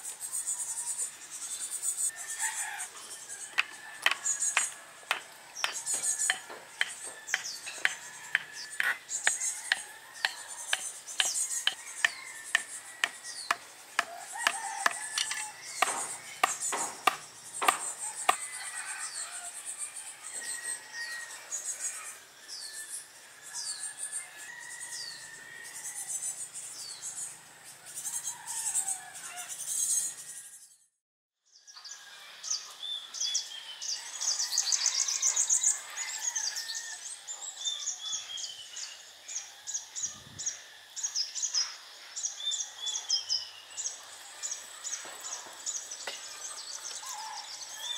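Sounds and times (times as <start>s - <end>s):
birds chirping: 0.0s - 30.8s
wooden mallet knocking stakes: 3.5s - 18.5s.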